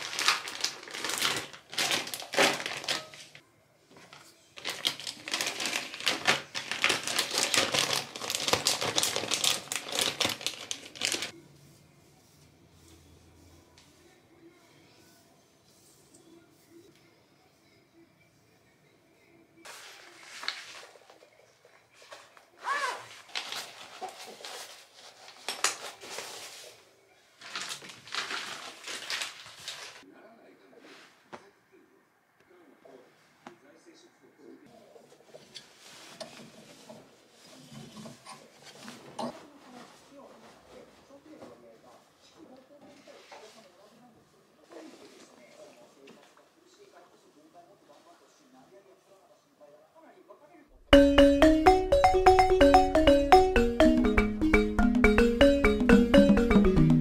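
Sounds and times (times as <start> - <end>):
plastic bag crinkling: 0.0 - 3.4, 4.6 - 11.3, 23.1 - 26.7, 27.4 - 30.0.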